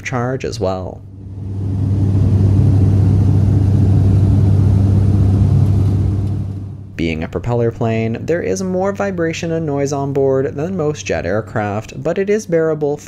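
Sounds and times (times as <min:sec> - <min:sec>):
airflow noise: 0:00.9 - 0:07.4
propeller aircraft cabin drone: 0:01.0 - 0:07.1.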